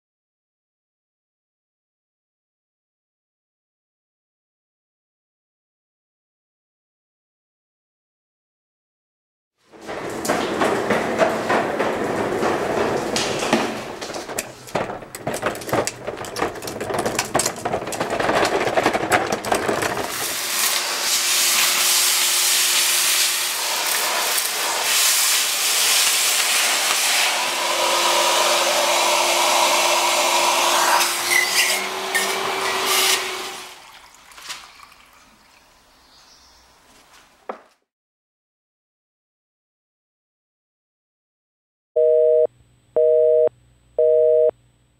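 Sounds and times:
vacuum rattling on castors: 9.7s - 20.8s
vacuum suction rushing hiss: 20.7s - 31.1s.

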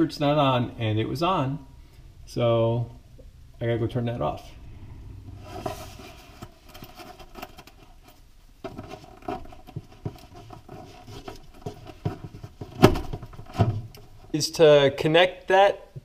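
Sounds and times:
cable tapping and rustling on wood: 6.4s - 14.3s.

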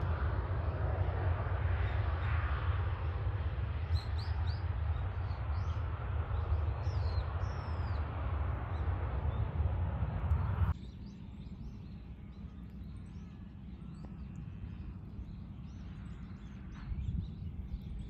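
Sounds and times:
distant airport hum: 0.0s - 18.0s
jet engines rumbling: 0.0s - 18.0s
small birds chirping: 10.2s - 18.0s.

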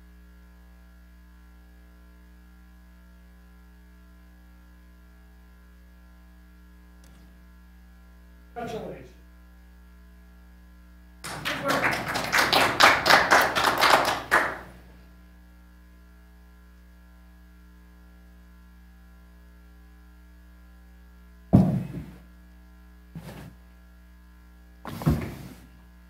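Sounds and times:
electrical mains hum: 0.0s - 26.0s
people clapping: 11.2s - 14.9s
sharp thud: 21.6s - 22.2s
small knock: 21.6s - 22.2s.

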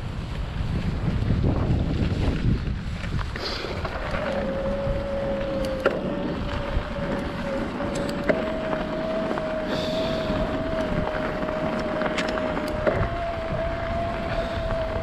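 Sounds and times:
bike rattling over ground: 0.0s - 15.0s
wind rushing on microphone: 0.0s - 15.0s
steady thin whine: 3.6s - 15.0s.

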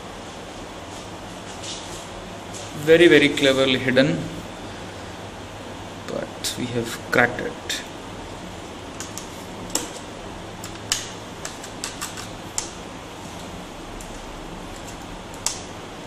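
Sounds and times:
background hum: 0.0s - 16.0s.

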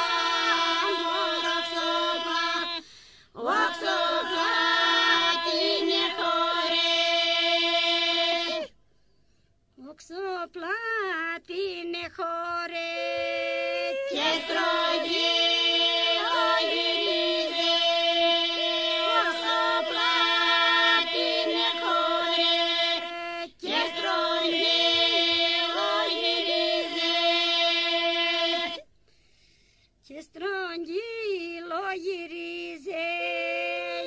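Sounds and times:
group of voices droning: 0.0s - 8.7s, 13.0s - 28.8s.

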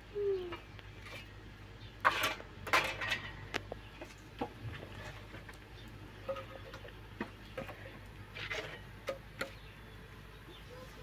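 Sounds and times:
wood scraping: 2.0s - 9.6s.

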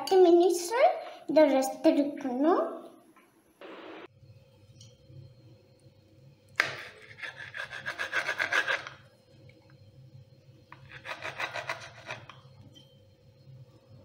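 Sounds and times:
knife sawing on a cutting board: 6.6s - 9.0s, 10.8s - 12.3s.

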